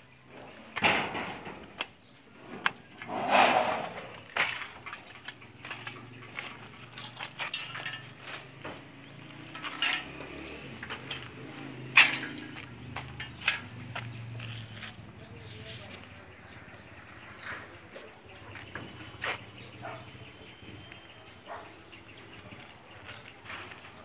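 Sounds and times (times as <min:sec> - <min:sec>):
clanks on steel roof frame: 0:00.8 - 0:05.1
loud metal clatters: 0:00.8 - 0:14.7.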